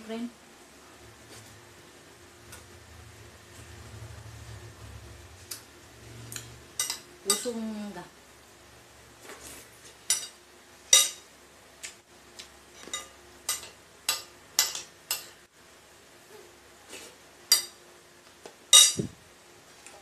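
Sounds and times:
spoon and dishes clinking: 0:06.4 - 0:07.5, 0:10.1 - 0:11.2, 0:12.8 - 0:15.4, 0:18.7 - 0:19.1.

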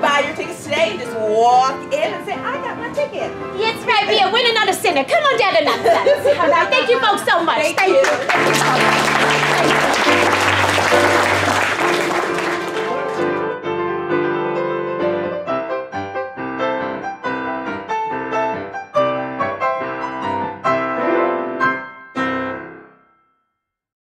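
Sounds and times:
applause: 0:07.7 - 0:13.5
solo piano music: 0:08.1 - 0:23.2.

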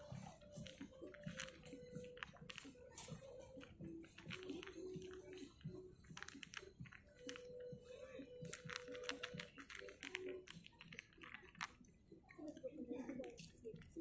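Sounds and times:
cat crunching dry kibble: 0:08.5 - 0:12.0.

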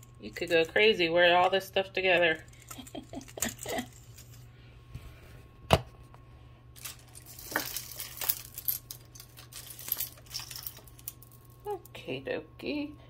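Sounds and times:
jewelry clinking and rattling: 0:00.0 - 0:04.5, 0:06.8 - 0:11.9.

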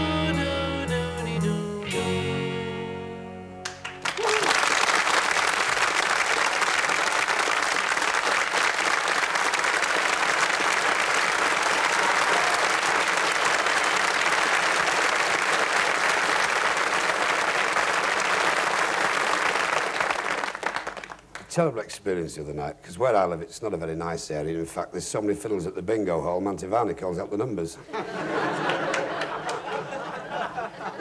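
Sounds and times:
audience applauding: 0:03.6 - 0:21.5, 0:28.2 - 0:31.0.

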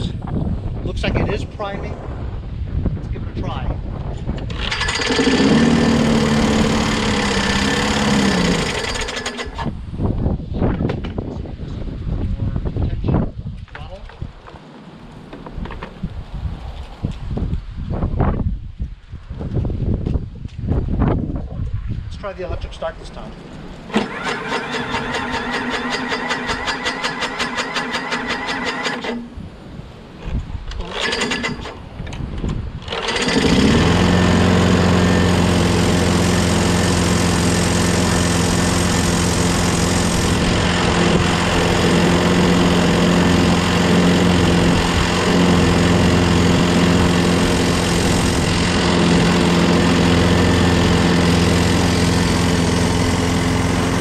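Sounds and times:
electric starter motor cranking: 0:04.4 - 0:09.8, 0:23.9 - 0:29.3, 0:30.7 - 0:31.9, 0:32.5 - 0:54.0
lawnmower engine running: 0:04.4 - 0:09.8, 0:23.9 - 0:29.4, 0:30.7 - 0:31.9, 0:32.8 - 0:54.0.

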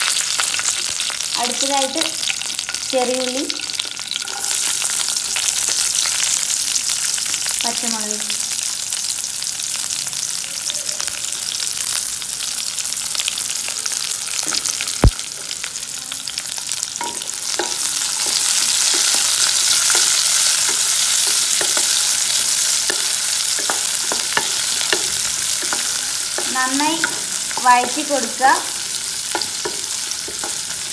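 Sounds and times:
vegetables sizzling in hot oil: 0:00.0 - 0:30.9.

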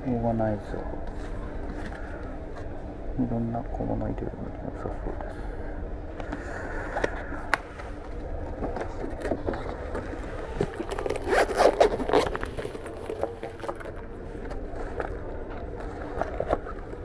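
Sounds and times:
zipper being pulled: 0:10.8 - 0:12.9.

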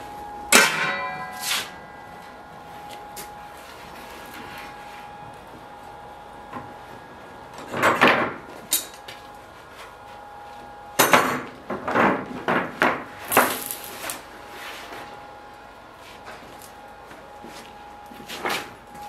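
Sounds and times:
faint steady hum: 0:00.0 - 0:19.0
metal blade scraping: 0:00.5 - 0:02.2.

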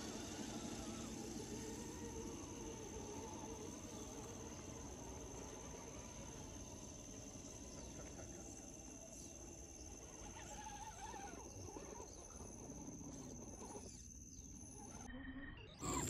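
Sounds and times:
insects chirring: 0:00.0 - 0:16.0
wavering bird-like call: 0:15.7 - 0:16.0.

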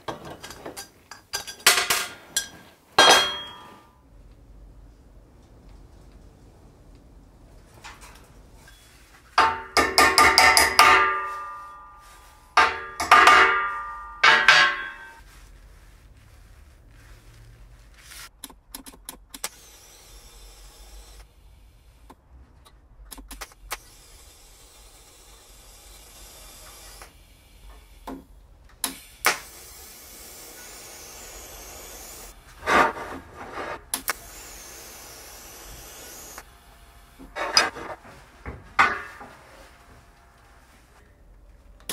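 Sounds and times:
steel pieces clanging: 0:00.2 - 0:03.9, 0:07.8 - 0:15.2.

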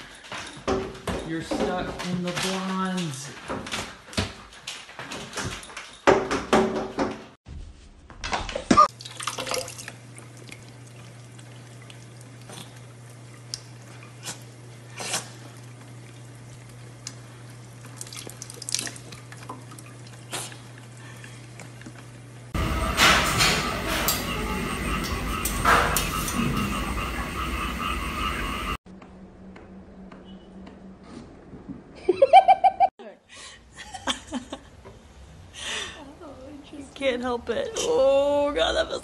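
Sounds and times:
faucet running into sink: 0:08.9 - 0:13.7
faint drips: 0:09.0 - 0:22.1
low hum: 0:19.0 - 0:31.8.

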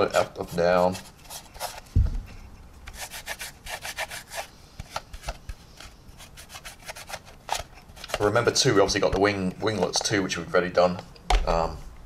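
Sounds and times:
paper towel rubbing on plastic: 0:00.0 - 0:01.9, 0:02.9 - 0:08.4
low thump: 0:01.9 - 0:02.5.

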